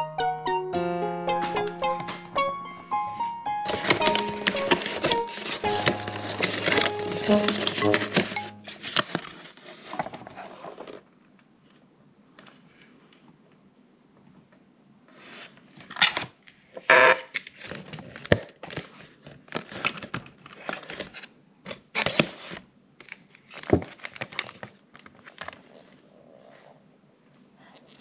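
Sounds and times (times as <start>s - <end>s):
paper box crinkling and rustling: 3.7s - 11.2s, 17.4s - 26.0s.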